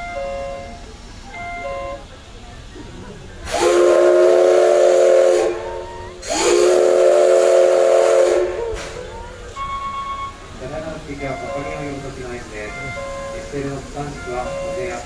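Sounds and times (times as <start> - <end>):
hiss of steam: 0.0 - 15.0
steam whistle blasts: 3.4 - 10.6, 11.2 - 15.0.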